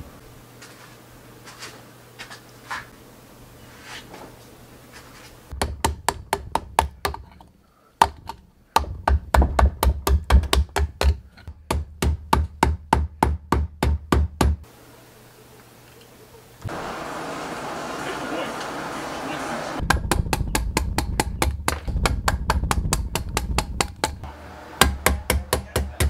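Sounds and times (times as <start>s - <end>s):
hammer striking chisel: 19.8s - 24.2s, 24.8s - 26.0s.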